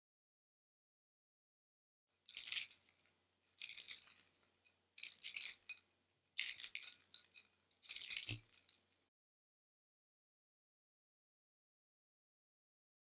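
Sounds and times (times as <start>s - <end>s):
rattling shaking sound: 2.3s - 5.8s, 6.4s - 9.0s.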